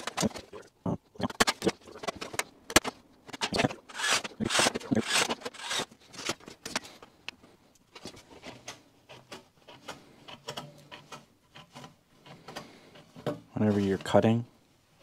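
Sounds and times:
snips scraping metal: 0:01.4 - 0:06.8.

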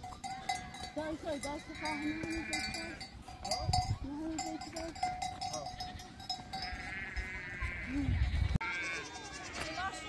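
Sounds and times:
livestock bell ringing: 0:00.0 - 0:08.0
sheep and goats bleating: 0:00.0 - 0:10.0.

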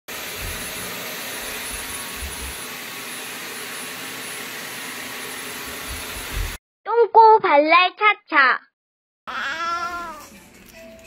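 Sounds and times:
vacuum cleaner running: 0:00.1 - 0:06.6.

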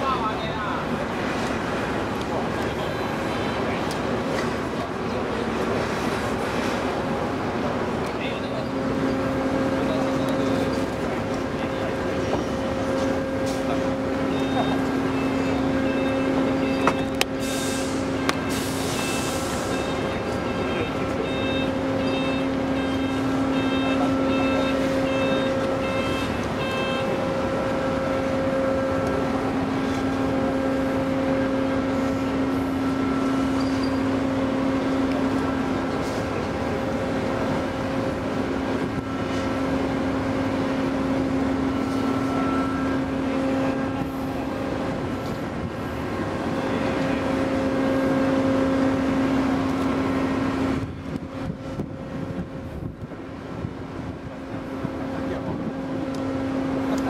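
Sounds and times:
heavy machinery humming: 0:00.0 - 0:57.0
warning beeper: 0:13.2 - 0:29.4.

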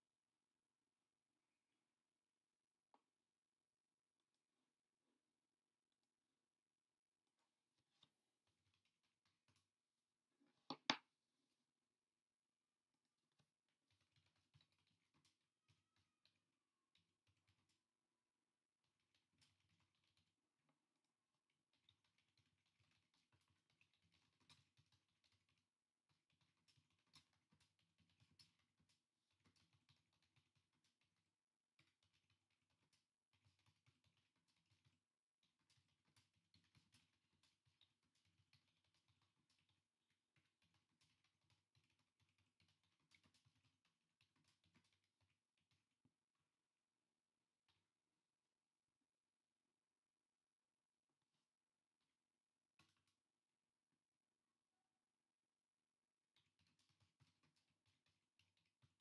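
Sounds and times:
faint irregular clicks: 0:05.7 - 0:11.8, 0:12.5 - 0:46.7, 0:51.2 - 0:53.6, 0:55.6 - 0:59.0.

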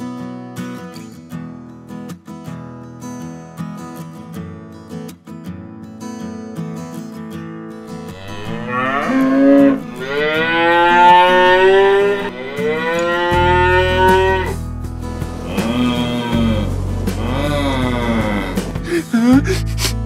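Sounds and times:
quiet acoustic guitar music: 0:00.0 - 0:20.0
cattle mooing: 0:08.0 - 0:14.6, 0:15.4 - 0:18.7.

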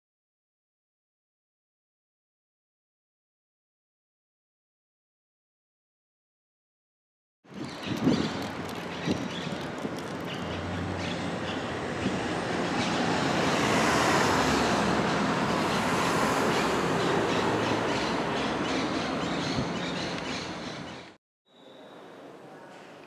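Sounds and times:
heavy vehicle rumbling past: 0:10.5 - 0:20.9.

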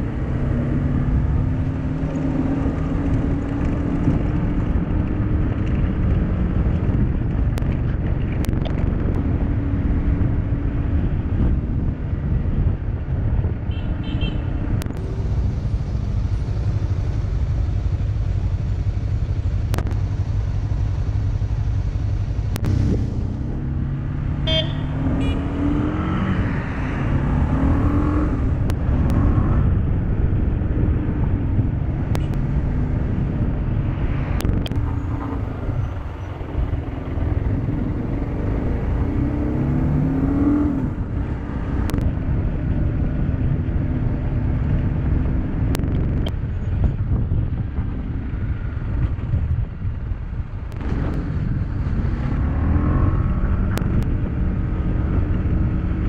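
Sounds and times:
motorcycle engine: 0:00.0 - 0:56.0
wind and road noise: 0:00.0 - 0:56.0.

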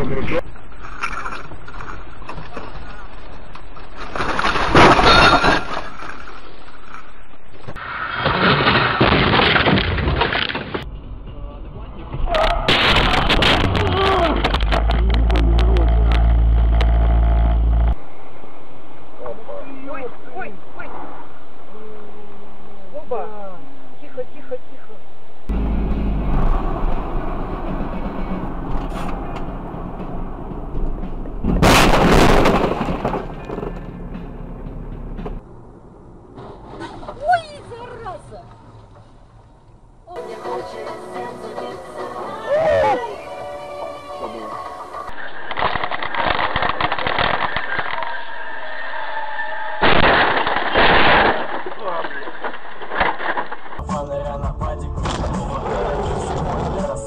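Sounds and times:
car road and engine noise: 0:00.0 - 0:08.4, 0:10.4 - 0:24.0, 0:24.9 - 0:51.3
rough noise: 0:00.0 - 0:19.0, 0:25.5 - 0:40.6
car crash impact: 0:04.0 - 0:06.1, 0:07.7 - 0:10.9, 0:12.4 - 0:15.0, 0:25.5 - 0:35.5, 0:36.2 - 0:37.4, 0:49.8 - 0:53.8, 0:55.0 - 0:57.0
windshield glass cracking: 0:45.4 - 0:48.3, 0:49.8 - 0:53.8.

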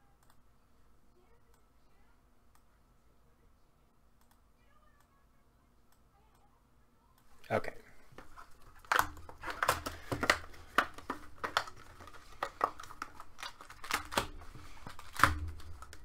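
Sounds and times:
wrapper and cardboard rustling: 0:08.0 - 0:16.0.

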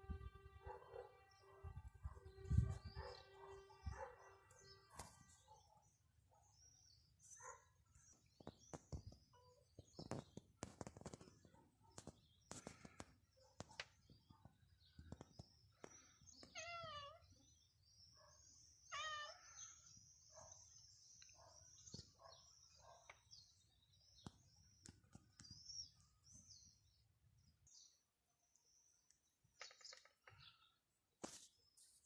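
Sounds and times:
small birds chirping: 0:02.2 - 0:32.0
cat meowing: 0:16.5 - 0:17.2, 0:18.9 - 0:19.4.

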